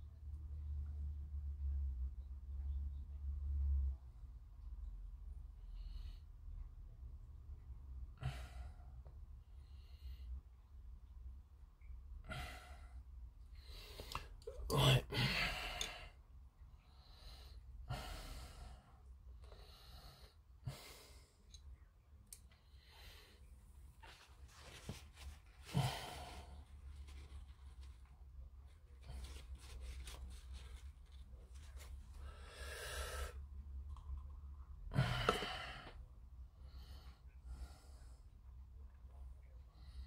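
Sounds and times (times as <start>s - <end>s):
low steady hum: 0.0s - 40.0s
person breathing slowly: 16.8s - 21.6s, 22.6s - 28.0s, 29.0s - 33.5s, 36.6s - 38.4s
man breathing out heavily: 32.2s - 33.4s.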